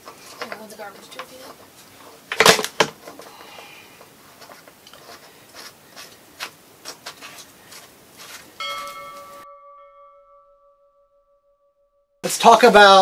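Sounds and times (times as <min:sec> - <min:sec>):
bell-like chime ringing: 0:08.6 - 0:12.2.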